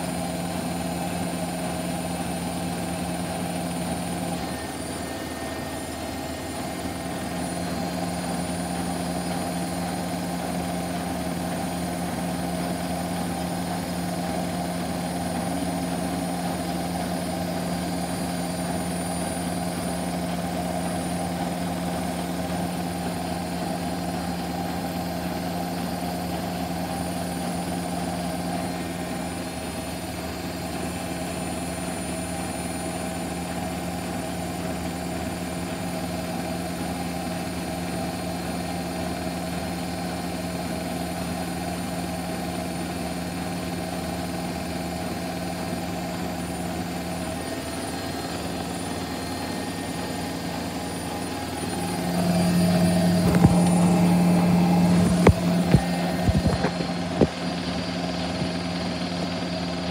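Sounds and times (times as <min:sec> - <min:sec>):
washing machine spinning: 0:00.0 - 0:59.9.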